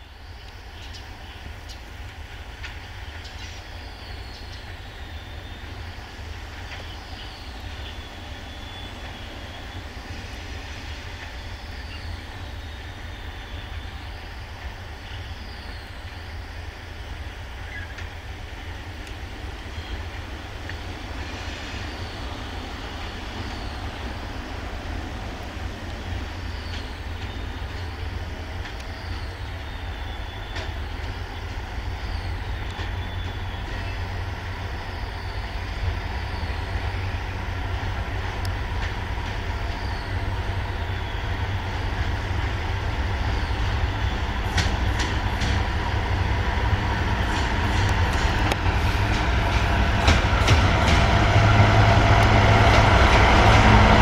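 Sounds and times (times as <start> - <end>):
diesel locomotive rumbling: 0.0 - 54.0
wheels clicking over rail joints: 36.8 - 54.0.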